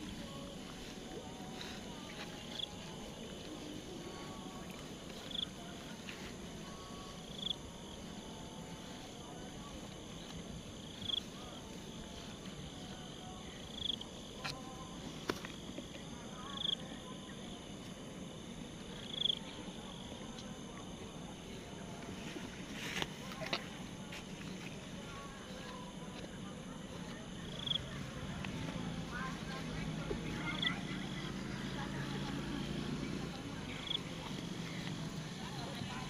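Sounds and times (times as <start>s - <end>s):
loud insect chirp: 0.0s - 20.2s, 27.4s - 28.2s, 28.9s - 36.0s
cricket trill: 0.0s - 36.0s.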